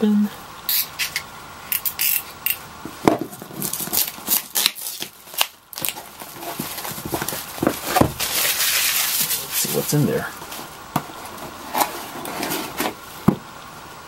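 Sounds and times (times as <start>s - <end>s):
plastic wrap crackling: 3.2s - 13.1s.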